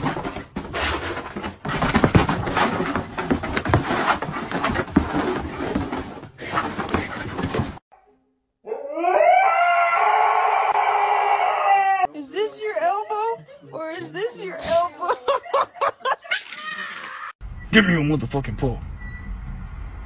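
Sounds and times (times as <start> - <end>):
dog running thumps and scuffles: 0.0 - 7.8
dog howling: 8.6 - 12.1.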